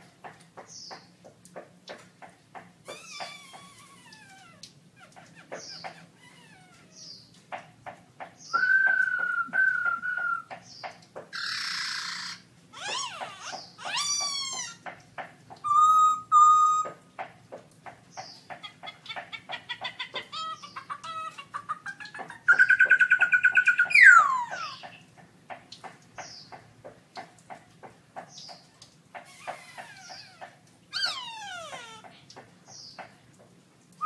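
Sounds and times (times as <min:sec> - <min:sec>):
bird singing varied song: 0:00.6 - 0:01.2, 0:05.1 - 0:06.1, 0:06.8 - 0:07.4, 0:08.2 - 0:14.8, 0:15.5 - 0:17.0, 0:18.1 - 0:25.1, 0:26.2 - 0:26.6, 0:29.4 - 0:33.2.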